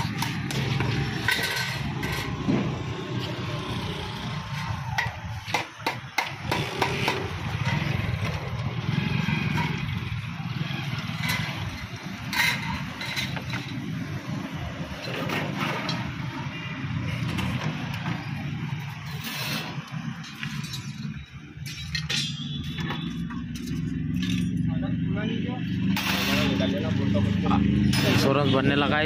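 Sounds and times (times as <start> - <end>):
hand tools tapping on metal: 0.0 - 2.5, 4.5 - 10.4, 11.0 - 13.9, 20.2 - 24.6.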